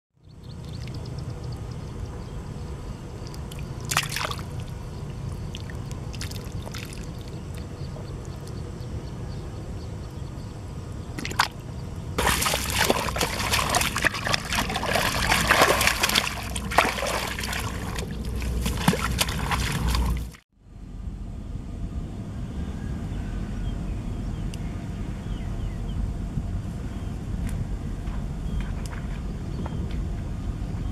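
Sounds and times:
fish splashing in water: 0:03.2 - 0:07.7, 0:11.2 - 0:11.6, 0:12.2 - 0:20.4.

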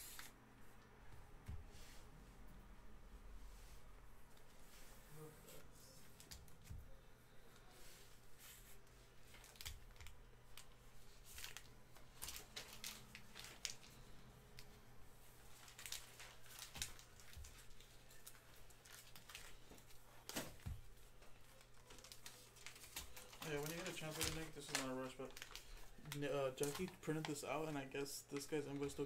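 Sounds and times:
foil wrappers crinkling: 0:08.6 - 0:14.8, 0:15.5 - 0:29.0.

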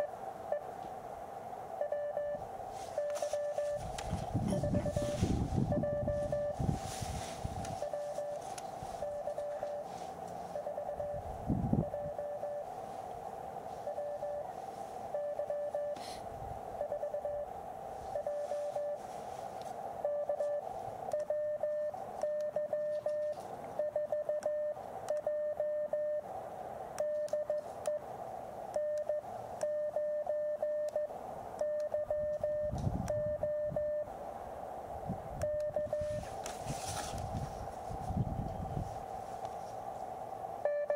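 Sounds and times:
morse code beeps: 0:00.0 - 0:00.6, 0:01.8 - 0:06.6, 0:07.7 - 0:12.7, 0:13.8 - 0:14.5, 0:15.1 - 0:16.0, 0:16.8 - 0:17.5, 0:18.1 - 0:19.0, 0:20.0 - 0:26.2, 0:27.0 - 0:28.0, 0:28.8 - 0:34.1, 0:35.4 - 0:36.2, 0:40.6 - 0:40.9
radio band noise hiss: 0:00.0 - 0:31.6, 0:33.7 - 0:40.9.

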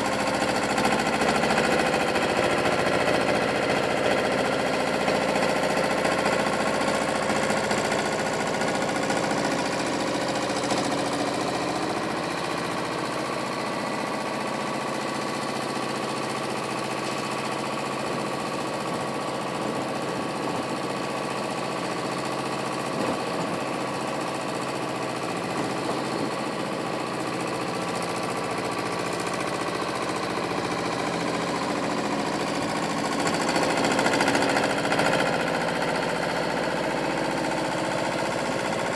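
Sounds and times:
diesel engines running: 0:00.0 - 0:38.9.

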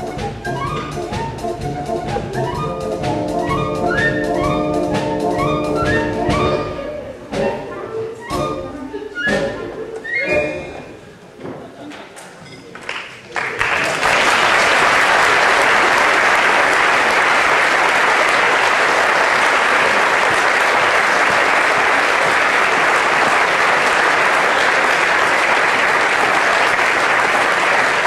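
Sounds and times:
audience applauding: 0:12.8 - 0:28.0.

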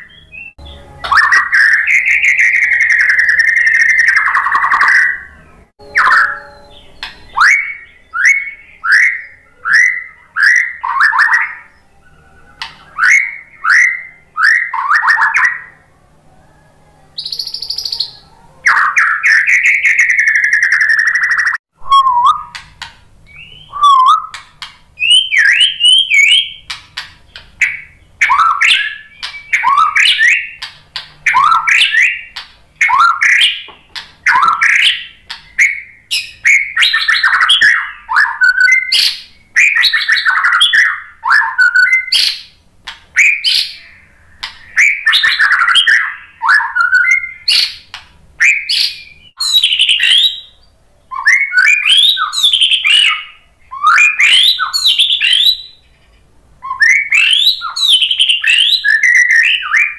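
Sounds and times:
bird singing whistled phrases: 0:00.0 - 0:15.8, 0:17.1 - 0:22.6, 0:23.3 - 0:24.4, 0:25.0 - 0:26.8, 0:27.6 - 0:42.4, 0:43.2 - 0:55.8, 0:56.6 - 0:59.9
bird sharp clicking notes: 0:06.9 - 0:07.6, 0:12.6 - 0:13.1, 0:26.2 - 0:35.8.

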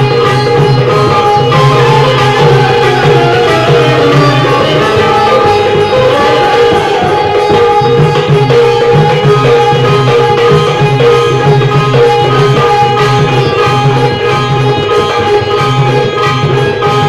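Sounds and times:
drum steady rhythm: 0:00.0 - 0:16.0
banjo melody: 0:00.0 - 0:17.0.

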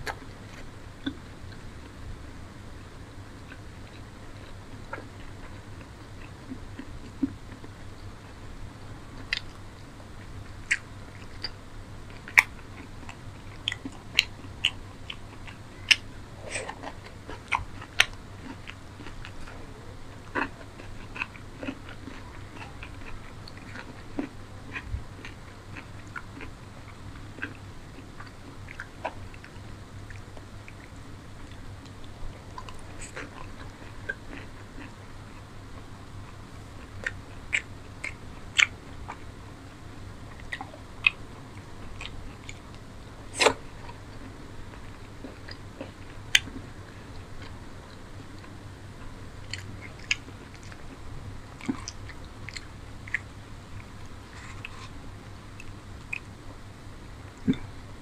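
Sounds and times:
chewing food: 0:00.0 - 0:56.6
faint low hum: 0:00.0 - 0:58.0.

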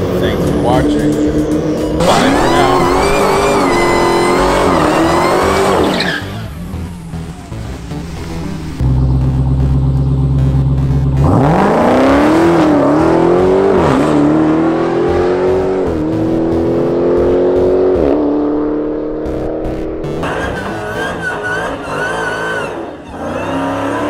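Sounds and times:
car engine launching and upshifting: 0:00.0 - 0:24.0
tyre squeal: 0:02.1 - 0:06.5, 0:20.3 - 0:24.0.

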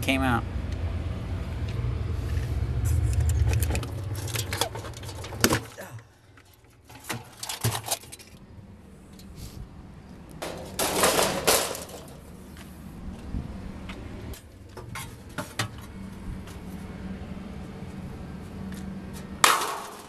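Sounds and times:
metal parts clinking and rattling: 0:03.1 - 0:05.7, 0:06.4 - 0:08.4, 0:10.4 - 0:12.3.

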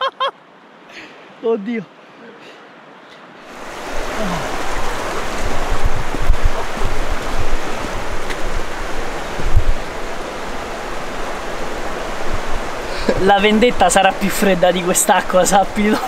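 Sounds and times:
river flowing: 0:00.0 - 0:16.0
low thumps: 0:04.4 - 0:08.6.

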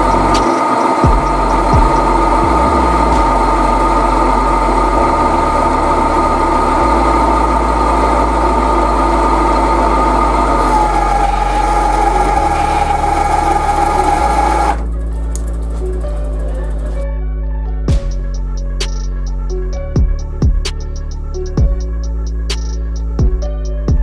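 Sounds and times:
metal lathe whining: 0:00.0 - 0:17.0.

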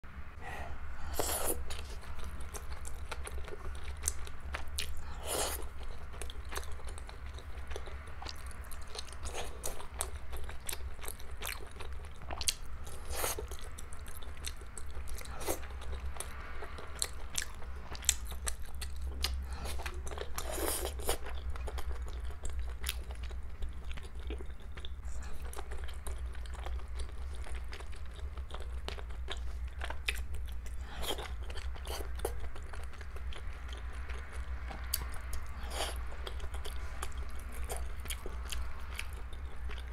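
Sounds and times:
steady low hum: 0:00.0 - 0:39.9.

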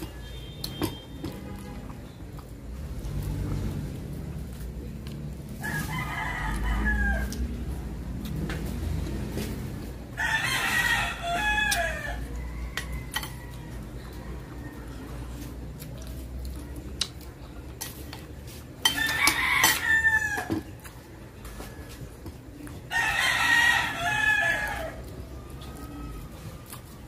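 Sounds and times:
rooster crowing: 0:05.6 - 0:07.5, 0:10.1 - 0:15.2, 0:18.9 - 0:20.7, 0:22.9 - 0:25.1
dishes and cutlery clinking: 0:12.7 - 0:13.7, 0:17.0 - 0:20.7.

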